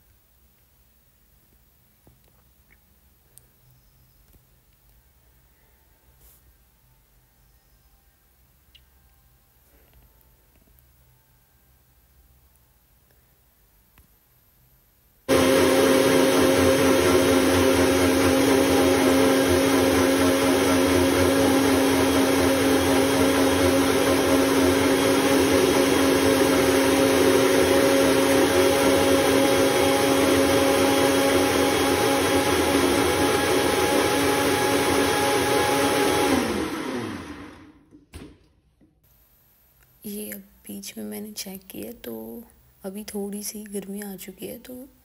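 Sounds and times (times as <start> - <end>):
mixer grinder motor whining: 15.3 - 37.8.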